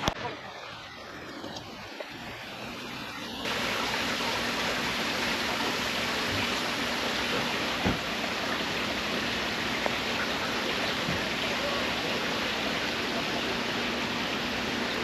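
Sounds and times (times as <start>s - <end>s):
steady rain falling: 3.4s - 15.0s.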